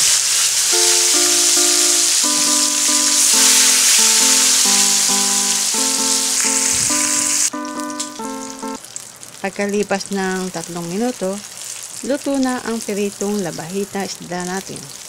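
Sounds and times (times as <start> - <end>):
background music of slow held notes: 0.0 - 8.8
fish frying in oil: 0.0 - 15.0.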